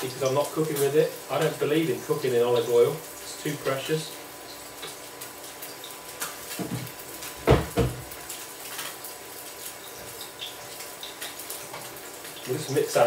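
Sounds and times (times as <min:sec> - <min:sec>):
dull knocks on worktop: 0:06.6 - 0:08.1.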